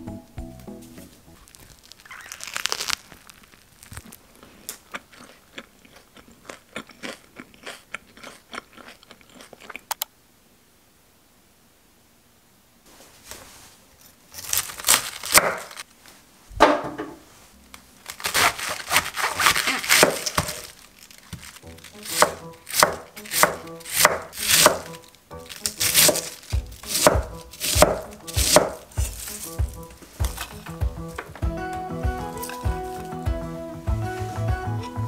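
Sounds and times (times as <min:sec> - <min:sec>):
knife cutting cabbage: 0:14.0 - 0:15.8, 0:18.0 - 0:31.2.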